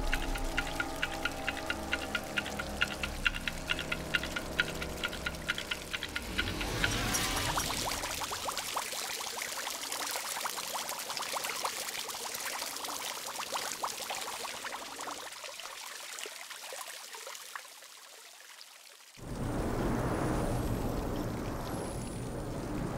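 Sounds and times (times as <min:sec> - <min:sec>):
gas bubbles fizzing in water: 0:00.0 - 0:15.2.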